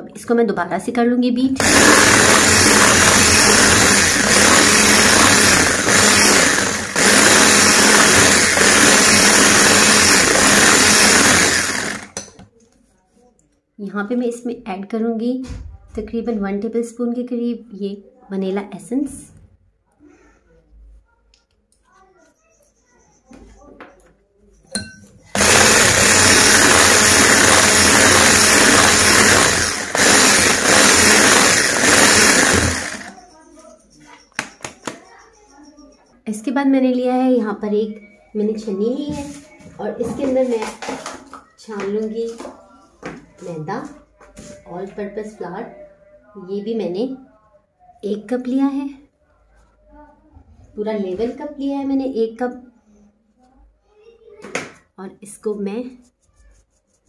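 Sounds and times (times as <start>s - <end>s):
electric hand mixer whirring: 1.6s - 12.2s, 25.4s - 33.1s.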